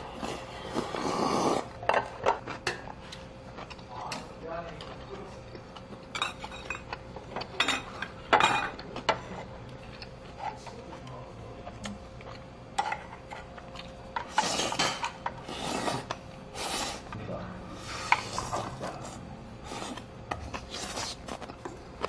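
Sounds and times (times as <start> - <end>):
close-up eating noises: 0.0 - 22.0
utensils clinking against bowls: 1.6 - 11.2, 12.2 - 16.2.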